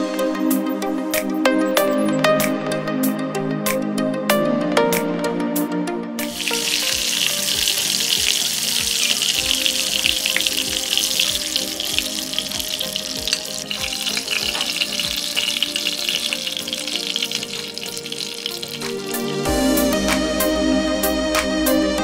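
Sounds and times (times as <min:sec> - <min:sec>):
food sizzling in oil: 0:06.2 - 0:19.8.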